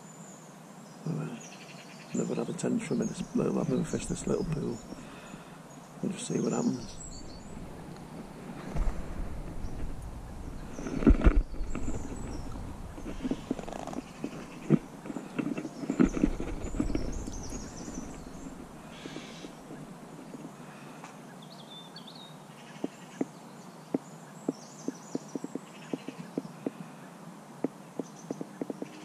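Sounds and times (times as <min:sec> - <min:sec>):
low thumps and rumble: 0:06.8 - 0:15.2, 0:15.9 - 0:20.0.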